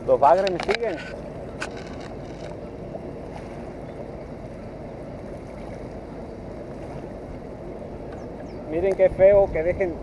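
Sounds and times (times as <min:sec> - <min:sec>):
river water flowing: 0:00.0 - 0:10.0
wind: 0:00.0 - 0:10.0.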